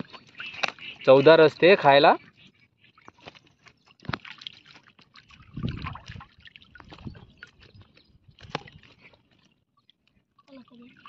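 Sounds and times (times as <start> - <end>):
shallow water sloshing: 0.0 - 11.0
small drips: 2.8 - 11.0.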